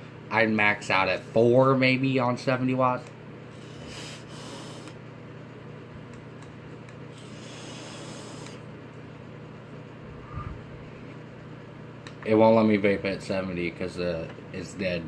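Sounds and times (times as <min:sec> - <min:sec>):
steady low hum: 0:00.0 - 0:15.0
person vaping breathy hiss: 0:03.5 - 0:05.0, 0:07.2 - 0:08.6.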